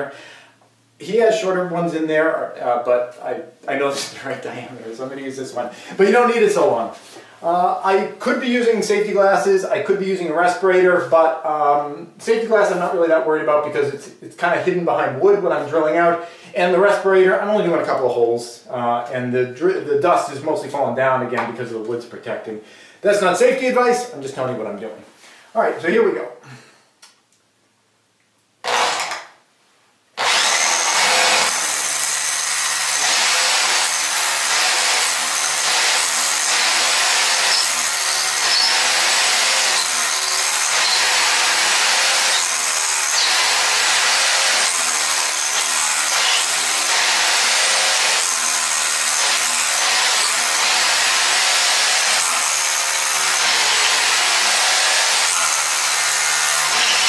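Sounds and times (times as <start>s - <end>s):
power drill drilling into concrete: 28.6s - 29.3s, 30.2s - 57.0s.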